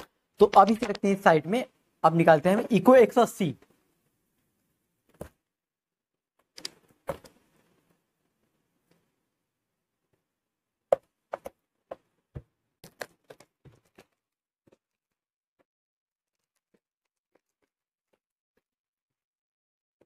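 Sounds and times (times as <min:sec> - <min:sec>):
clicks and snaps: 0:06.4 - 0:07.4.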